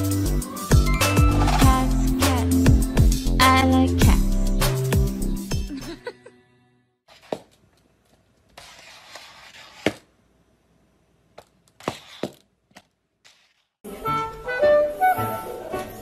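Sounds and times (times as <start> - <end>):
music: 0.0 - 7.0, 13.8 - 16.0.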